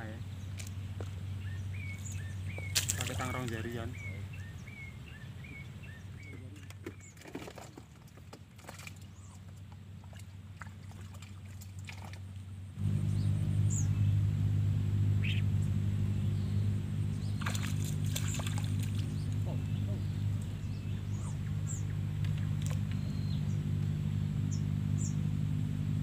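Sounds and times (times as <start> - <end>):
low engine hum: 0.0 - 26.0
bird chirps: 1.4 - 7.2, 12.8 - 25.2.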